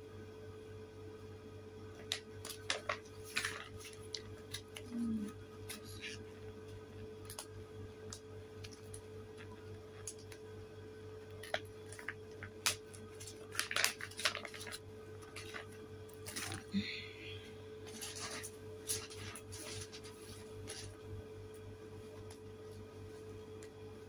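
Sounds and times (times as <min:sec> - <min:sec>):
steady low hum: 0:00.0 - 0:24.0
plastic packaging crinkling: 0:02.0 - 0:05.0, 0:11.3 - 0:16.7, 0:17.8 - 0:21.0.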